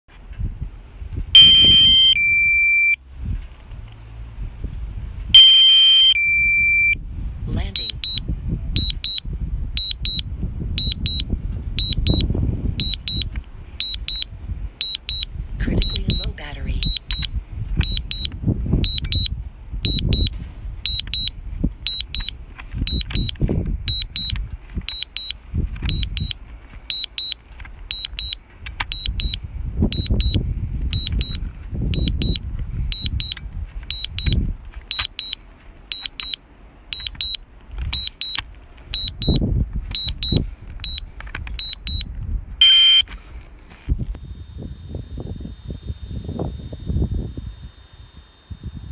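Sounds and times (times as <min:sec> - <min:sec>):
wind buffeting microphone: 0:00.2 - 0:05.4, 0:06.2 - 0:27.0, 0:27.7 - 0:35.0, 0:38.8 - 0:42.6, 0:43.8 - 0:48.9
harsh electronic tone: 0:01.4 - 0:03.0, 0:42.6 - 0:43.1
high double warning beeps: 0:01.4 - 0:03.0, 0:05.4 - 0:37.4, 0:38.0 - 0:43.1.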